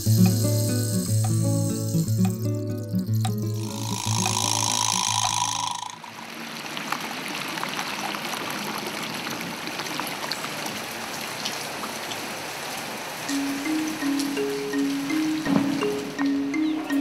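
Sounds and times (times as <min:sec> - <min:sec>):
small splashes and ticks: 0:00.0 - 0:05.4
water trickling: 0:00.0 - 0:10.4.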